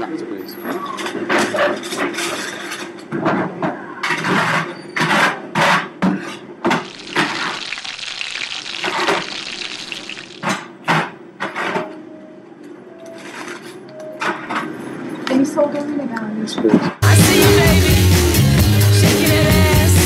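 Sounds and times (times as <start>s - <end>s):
deep fryer sizzling: 6.7s - 10.8s
salt shaker shaking: 6.9s - 10.5s.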